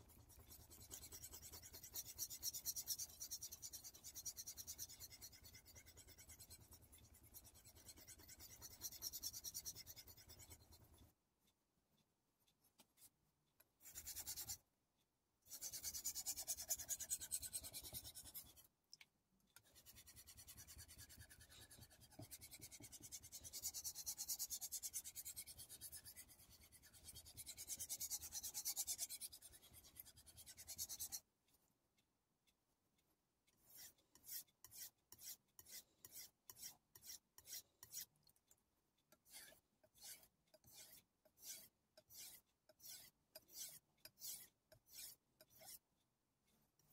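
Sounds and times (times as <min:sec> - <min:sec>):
knife scraping on wet whetstone: 0:39.2 - 0:45.8.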